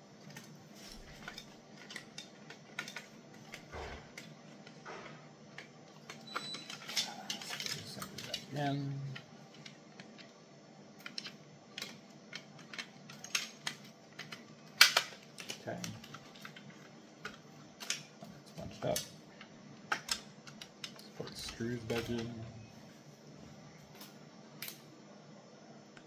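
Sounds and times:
plastic and metal parts clicking: 0:00.2 - 0:10.3, 0:11.0 - 0:22.4.

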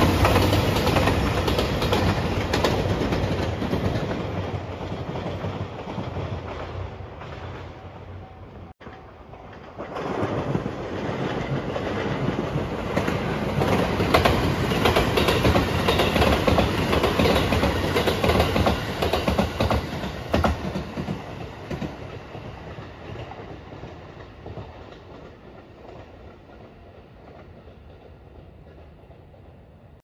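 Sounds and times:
sharp train clacks: 0:00.0 - 0:29.7
passing train rumble: 0:00.0 - 0:30.0
train wheels clattering over rail joints: 0:08.8 - 0:28.9.

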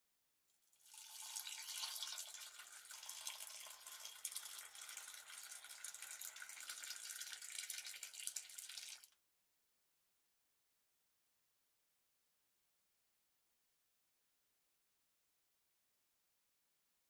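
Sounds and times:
water pouring into a mug: 0:00.7 - 0:09.2.

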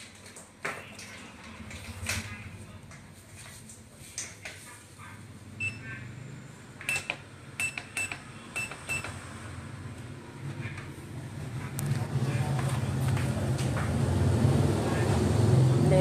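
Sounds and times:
short high beeps with clicks: 0:06.9 - 0:09.2.

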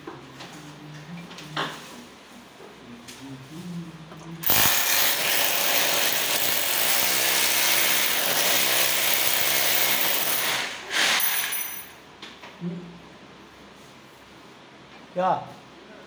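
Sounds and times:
electric drill on plastic panel: 0:04.4 - 0:11.6.

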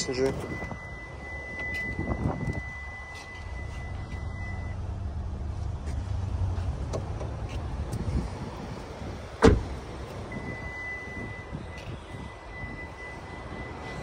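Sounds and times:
car door shutting thump: 0:09.4 - 0:09.8.

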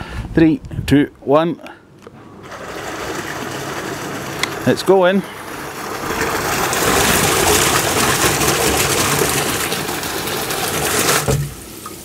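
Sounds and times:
sump pump running: 0:02.3 - 0:11.8
water gushing: 0:02.4 - 0:12.0.

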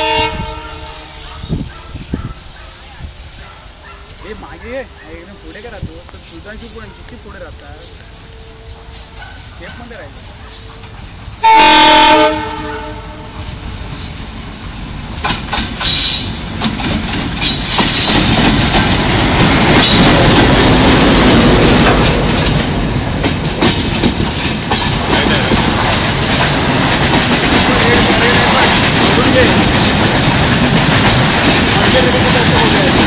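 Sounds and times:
locomotive horn blast: 0:00.0 - 0:01.3, 0:07.8 - 0:09.4, 0:11.4 - 0:13.4
train passing slowly: 0:00.0 - 0:33.0
wheels clicking over rail joints: 0:13.9 - 0:33.0.

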